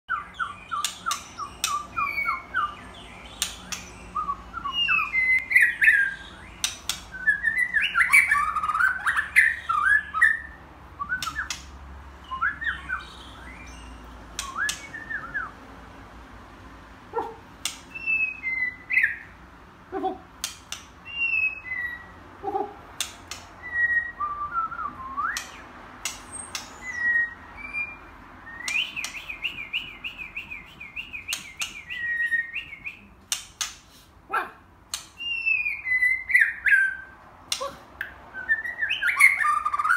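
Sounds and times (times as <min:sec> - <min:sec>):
bird singing whistled phrases: 0:00.1 - 0:11.6, 0:12.2 - 0:15.6, 0:17.9 - 0:19.3, 0:21.0 - 0:22.1, 0:23.6 - 0:25.6, 0:26.3 - 0:33.1, 0:35.2 - 0:37.2, 0:38.3 - 0:39.9
sharp clicks: 0:00.7 - 0:02.0, 0:03.3 - 0:04.0, 0:06.6 - 0:07.2, 0:11.2 - 0:11.8, 0:14.3 - 0:15.0, 0:17.6 - 0:18.0, 0:20.4 - 0:21.0, 0:22.9 - 0:23.6, 0:25.3 - 0:26.9, 0:28.6 - 0:29.9, 0:33.2 - 0:33.9.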